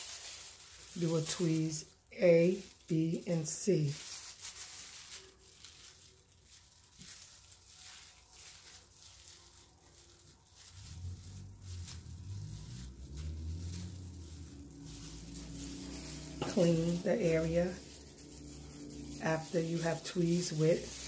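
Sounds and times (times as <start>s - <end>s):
plastic gloves rustling: 0.0s - 21.0s
low rumble: 10.6s - 21.0s.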